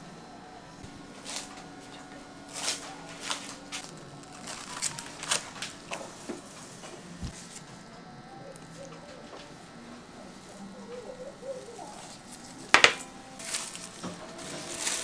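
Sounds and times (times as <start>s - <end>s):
plastic cling wrap crinkling: 0.9s - 7.7s, 10.4s - 15.0s.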